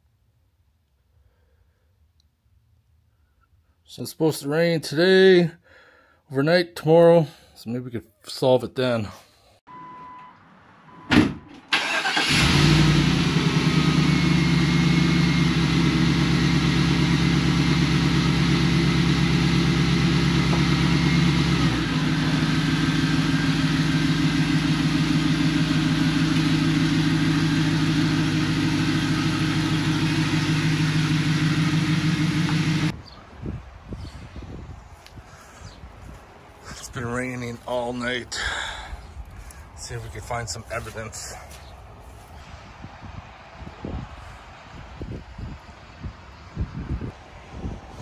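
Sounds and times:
car engine starting and idling: 9.8s - 33.0s
thump: 11.1s - 11.6s.

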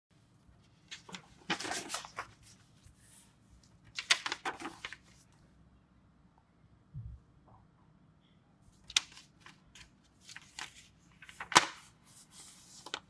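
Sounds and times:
paper folding crackling rustle: 0.5s - 5.4s, 8.8s - 13.0s.

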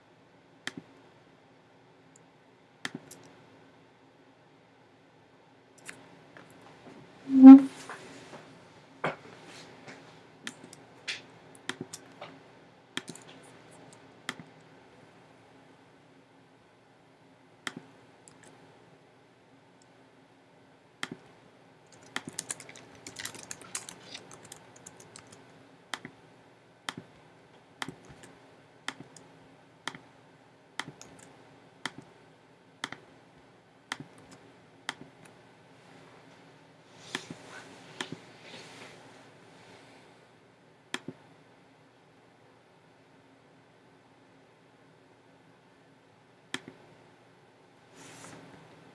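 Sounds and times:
computer keyboard typing: 21.9s - 25.4s.

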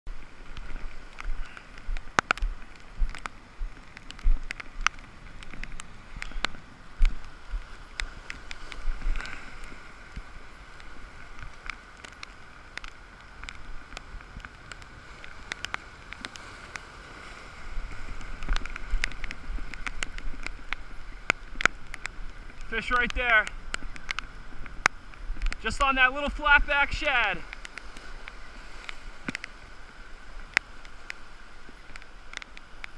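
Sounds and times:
surf breaking on boulders: 0.3s - 32.9s
sharp clicks and taps: 18.4s - 27.8s.

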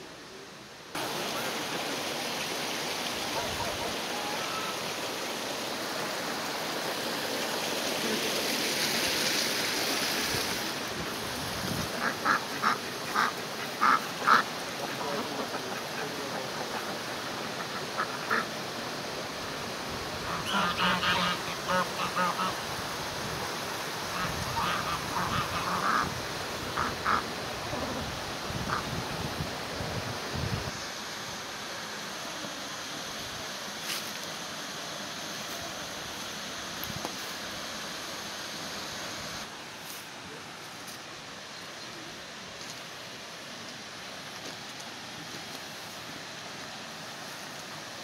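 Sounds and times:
ducks quacking: 11.9s - 18.6s, 20.2s - 22.6s, 24.1s - 28.0s.

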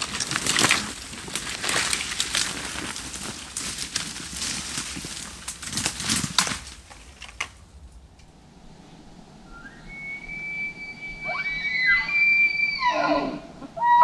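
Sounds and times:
dry twigs snapping: 0.0s - 8.3s
brush rustling and crackling: 0.0s - 9.2s
high whistle-like tone: 9.4s - 13.0s.

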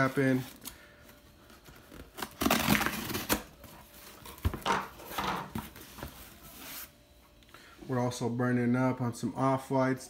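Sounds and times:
knife slicing packing tape: 2.2s - 3.5s.

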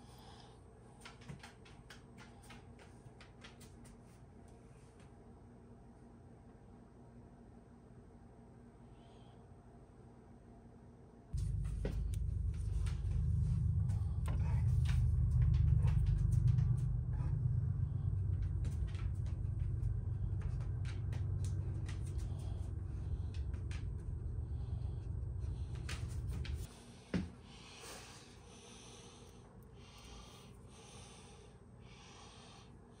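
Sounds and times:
oven rumbling: 11.4s - 26.7s.

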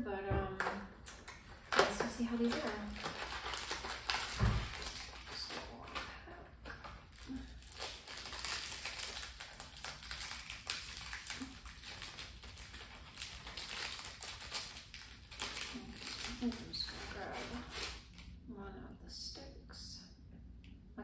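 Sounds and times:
plastic wrapper crinkling: 1.1s - 18.3s.

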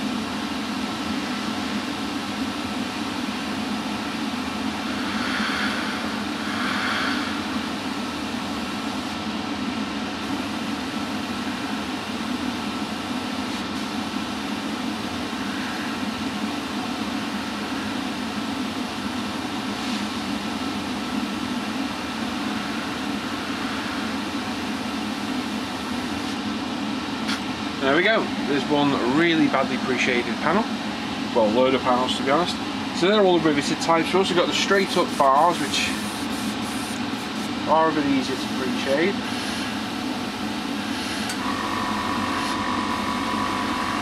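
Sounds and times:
air compressor humming: 0.0s - 44.0s
airbrush hissing: 4.5s - 9.0s, 21.1s - 26.4s, 35.8s - 37.5s, 40.8s - 44.0s.

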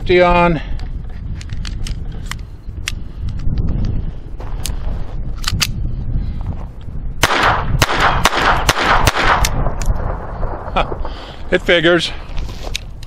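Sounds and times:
pistol handling clicks: 5.4s - 5.8s
pistol shots: 7.2s - 9.8s.

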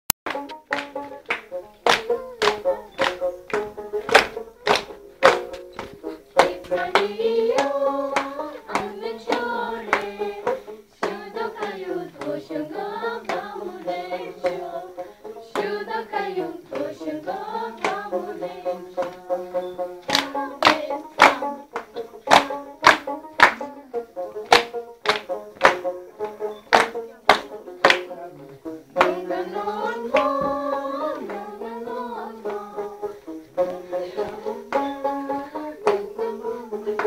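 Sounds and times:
rhythmic hand clapping: 0.2s - 37.0s
voices singing in unison: 0.4s - 37.0s.

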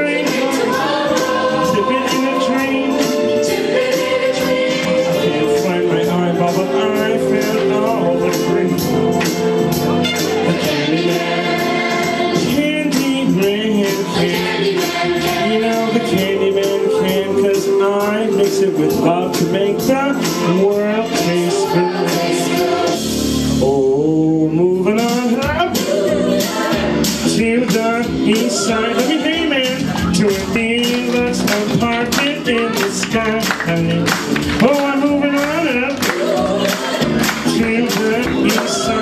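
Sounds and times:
man singing into microphone: 0.0s - 0.6s, 1.6s - 3.2s, 4.8s - 9.0s, 12.4s - 14.6s, 15.2s - 22.9s, 23.6s - 26.0s, 27.2s - 36.2s, 37.4s - 39.0s
choir singing: 0.0s - 24.0s, 25.4s - 34.2s, 34.9s - 39.0s
steady beat: 24.9s - 39.0s.

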